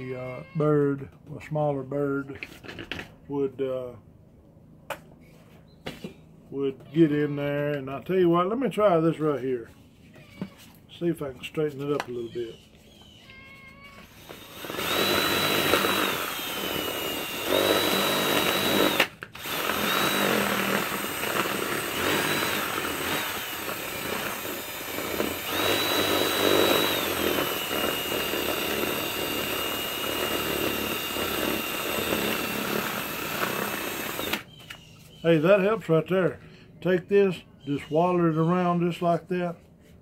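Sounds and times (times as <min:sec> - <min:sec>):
cordless drill whining: 0:14.0 - 0:34.5
drill bit grinding on gourd shell: 0:14.0 - 0:34.5.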